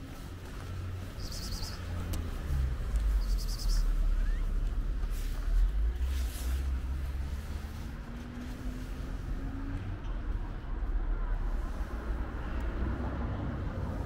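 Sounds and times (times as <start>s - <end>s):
bird trilling: 1.2s - 1.8s, 3.2s - 4.5s.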